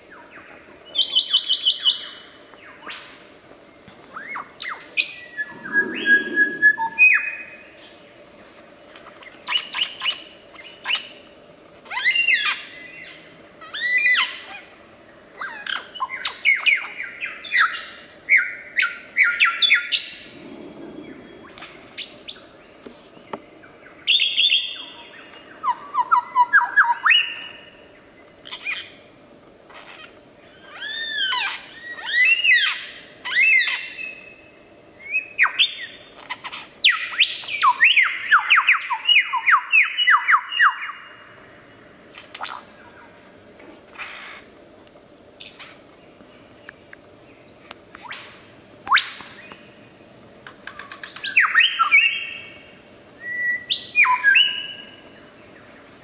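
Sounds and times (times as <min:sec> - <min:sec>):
lyrebird singing: 0:04.1 - 0:07.6.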